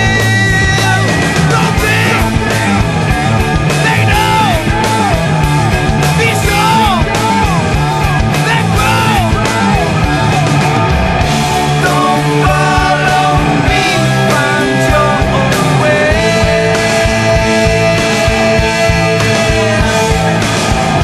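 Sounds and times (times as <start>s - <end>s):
rock song with electric guitar: 0.0s - 21.0s.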